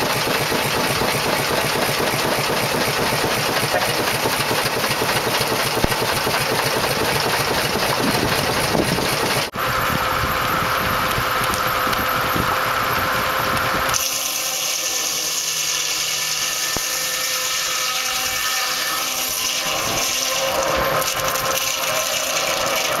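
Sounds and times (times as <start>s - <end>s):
machinery running low: 0.0s - 14.0s
circular saw cutting log: 0.0s - 23.0s.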